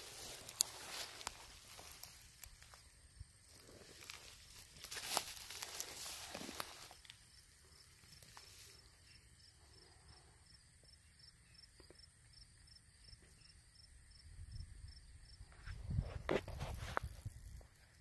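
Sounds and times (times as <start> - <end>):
rustling: 0.0 - 2.8, 3.5 - 7.2
insects chirping: 0.0 - 18.0.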